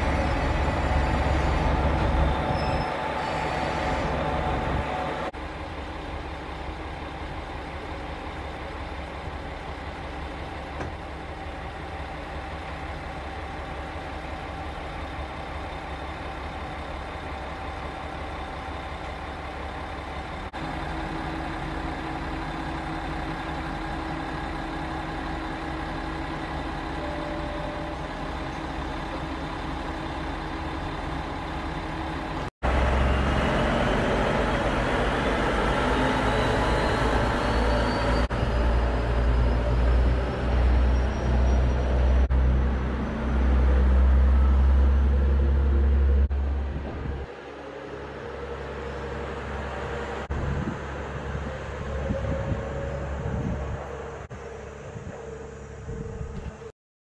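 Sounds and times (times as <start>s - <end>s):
diesel railcar engine idling: 0.0s - 56.7s
railcar pulling away: 0.0s - 56.7s.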